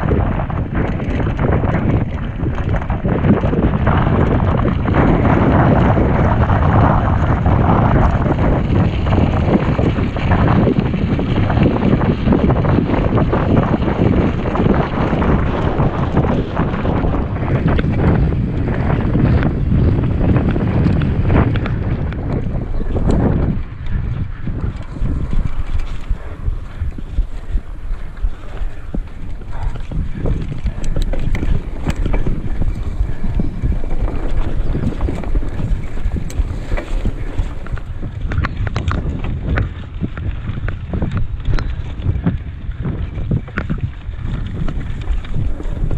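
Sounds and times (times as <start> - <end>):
bike rattling: 0.0 - 45.9
wind rumble on microphone: 0.0 - 45.9
tyres crunching on gravel: 24.8 - 38.5.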